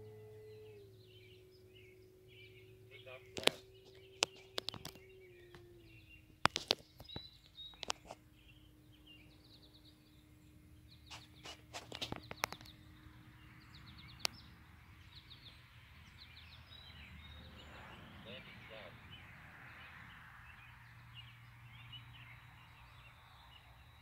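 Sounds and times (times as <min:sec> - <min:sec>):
birds chirping: 0:00.0 - 0:24.0
model plane motor droning overhead: 0:00.0 - 0:24.0
sharp clicks: 0:03.3 - 0:05.6, 0:11.1 - 0:12.8.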